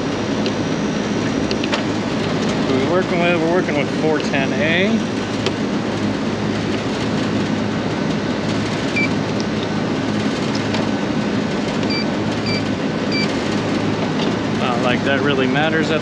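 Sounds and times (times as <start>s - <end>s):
air conditioning drone: 0.0s - 16.0s
short electronic beeps: 9.0s - 9.2s, 11.9s - 13.3s.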